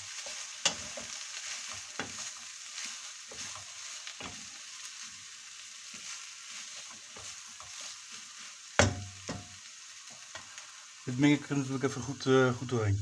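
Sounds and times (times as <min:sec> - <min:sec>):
noodles sizzling in a wok: 0:00.0 - 0:13.0
wooden spatula scraping and tapping: 0:00.1 - 0:04.6, 0:05.9 - 0:08.0.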